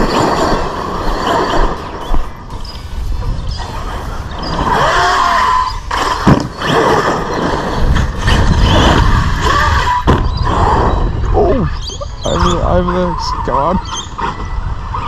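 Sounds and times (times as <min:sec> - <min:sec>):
electric motor whining: 0:00.0 - 0:12.6
tyres on loose dirt: 0:00.0 - 0:15.0
toy car landing thud: 0:05.9 - 0:06.9.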